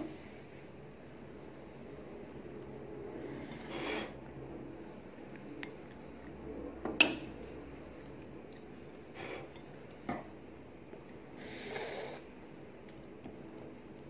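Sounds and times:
hissing breath: 3.2s - 4.2s, 11.4s - 12.3s
person sniffing and breathing hard: 3.2s - 4.2s, 11.4s - 12.3s.

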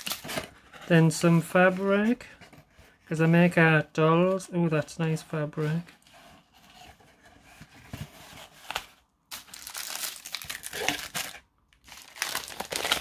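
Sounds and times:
cloth and cardboard rustling: 0.0s - 10.0s
tissue paper crinkling: 8.6s - 13.0s.

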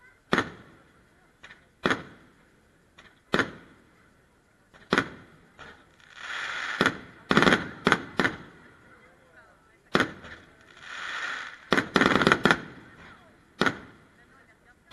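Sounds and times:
firework bangs: 0.2s - 3.9s, 4.6s - 8.8s, 9.7s - 14.5s
faint firework pops: 0.3s - 0.8s, 1.4s - 2.3s, 2.9s - 3.8s, 4.6s - 8.6s, 9.8s - 14.0s
hissing rush: 10.1s - 13.4s.

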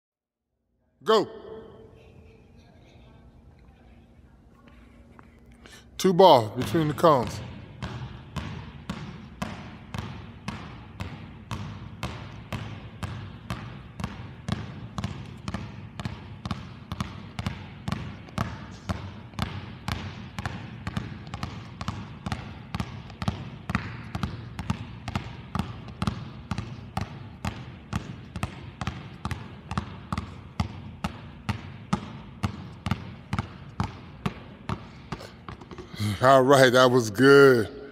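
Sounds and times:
basketballs bouncing on wood floor: 6.6s - 36.2s.

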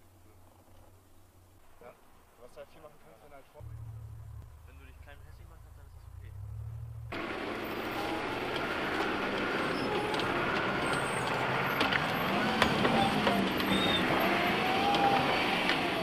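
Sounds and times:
tyre and road noise: 0.0s - 16.0s
vehicle engine running: 3.6s - 16.0s
sharp clicks: 8.4s - 14.2s.

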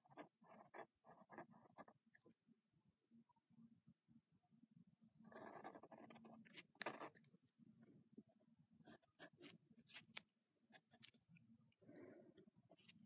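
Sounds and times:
pen scratching on paper: 0.0s - 2.0s, 5.3s - 7.2s, 8.8s - 11.1s.

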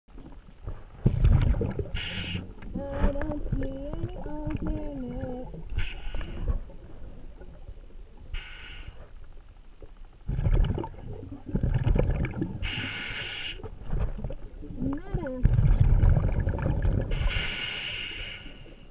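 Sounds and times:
underwater bubbling and gurgling: 0.1s - 18.9s
muffled wavering tone: 1.3s - 7.9s
short hissing bursts: 1.9s - 2.5s, 5.8s - 6.4s, 8.3s - 9.1s, 12.6s - 13.7s, 17.1s - 18.8s.

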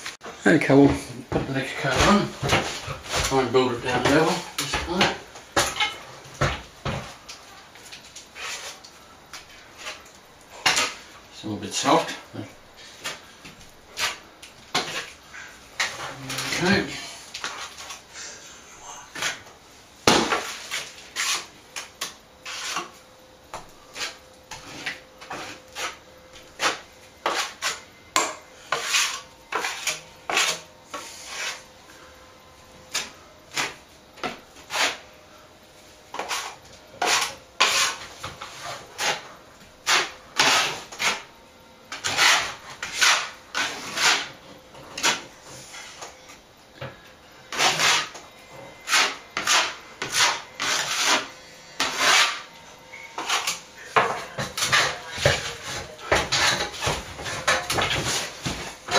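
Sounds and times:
plastering knife scraping: 8.3s - 8.9s, 20.3s - 23.0s, 23.9s - 27.8s, 28.7s - 31.6s, 34.6s - 35.0s, 36.1s - 41.3s, 41.9s - 46.1s, 47.5s - 48.2s, 48.8s - 52.5s, 53.2s - 58.9s.

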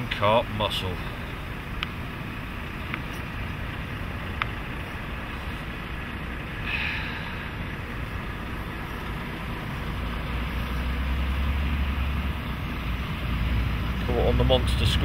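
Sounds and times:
rushing hiss: 6.6s - 8.5s.

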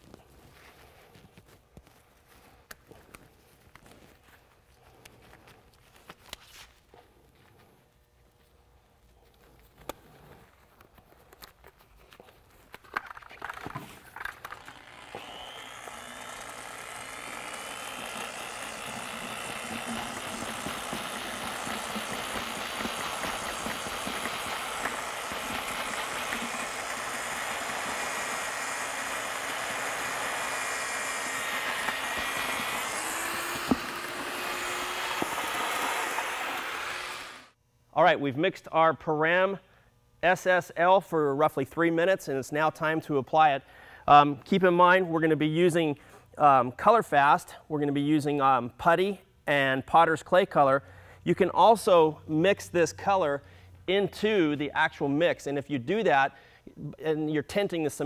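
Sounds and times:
paddle mixer drill running: 14.2s - 37.6s.

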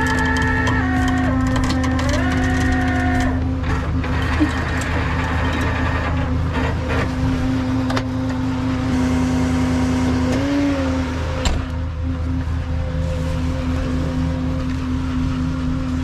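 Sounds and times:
sharp clicks and knocks: 0.0s - 7.1s
diesel engine running: 0.0s - 16.0s.

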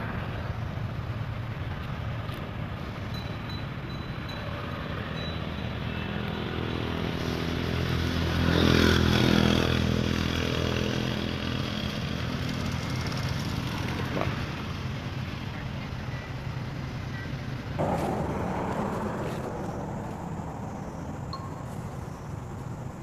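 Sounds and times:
vehicle engine passing by: 17.8s - 23.0s.

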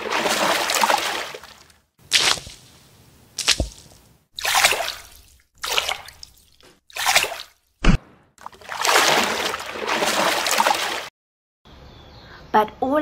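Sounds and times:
pool water splashing: 0.0s - 7.6s, 8.4s - 11.1s.

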